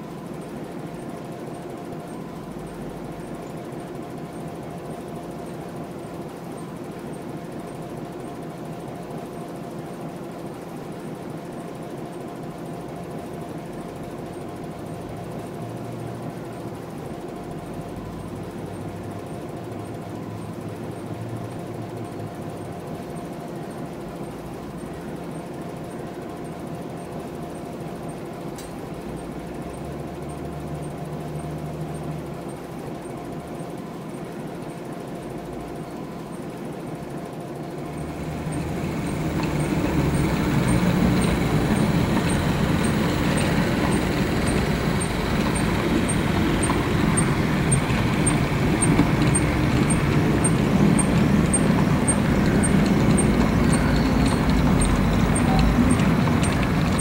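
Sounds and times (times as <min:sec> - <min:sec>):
model locomotive mechanical hum: 0:00.0 - 0:57.0
train low rumble: 0:37.8 - 0:57.0.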